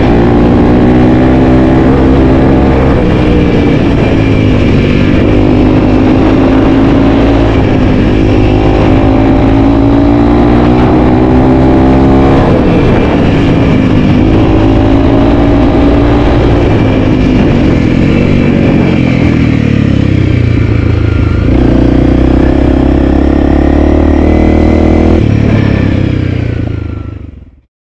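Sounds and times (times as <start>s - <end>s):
motorcycle engine running: 0.0s - 27.6s.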